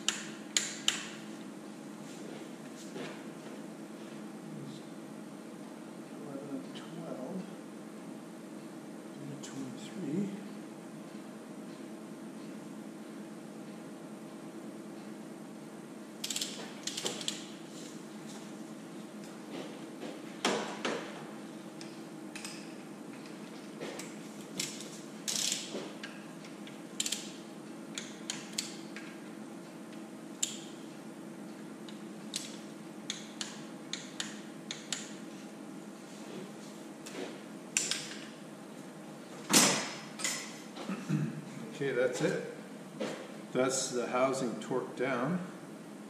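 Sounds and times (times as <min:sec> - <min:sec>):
ratchet wrench clicking: 0:16.2 - 0:17.4, 0:25.3 - 0:25.7, 0:27.0 - 0:27.3.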